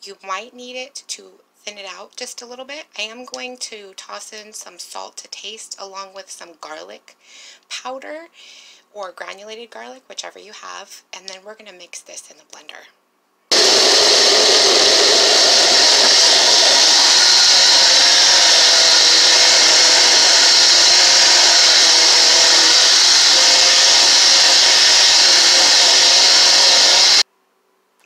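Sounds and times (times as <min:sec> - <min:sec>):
blender motor running: 0:13.5 - 0:27.2.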